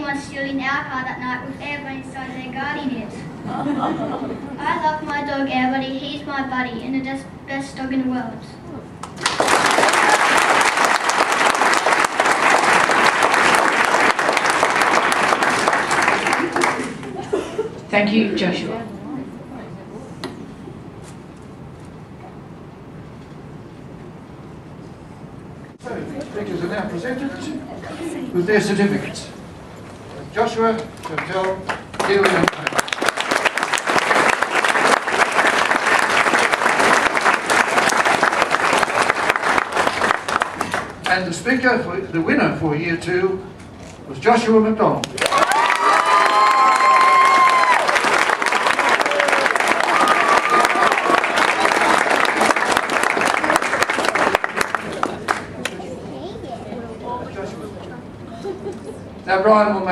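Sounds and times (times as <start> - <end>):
audience applauding: 9.0 - 17.4, 31.1 - 41.2, 45.0 - 55.8.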